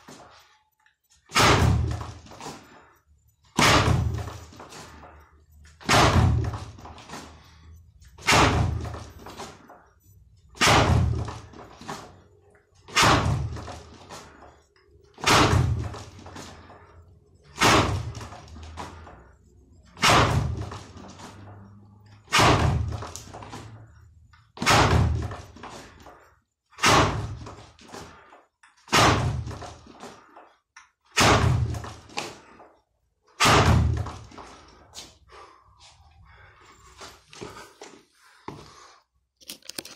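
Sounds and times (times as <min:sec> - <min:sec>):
fist striking wooden board: 0:01.3 - 0:02.2, 0:03.6 - 0:04.3, 0:05.8 - 0:06.6, 0:08.2 - 0:09.0, 0:10.6 - 0:11.4, 0:12.9 - 0:13.8, 0:15.2 - 0:16.0, 0:17.6 - 0:18.4, 0:20.0 - 0:20.8, 0:22.3 - 0:23.2, 0:24.6 - 0:25.4, 0:26.8 - 0:27.6, 0:28.9 - 0:29.8, 0:31.2 - 0:32.4, 0:33.4 - 0:34.2.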